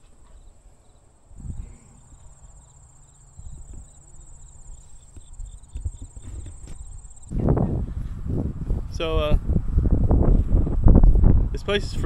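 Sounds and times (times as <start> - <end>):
crickets trilling: 0.4 - 7.3
footsteps thumping: 5.1 - 7.0.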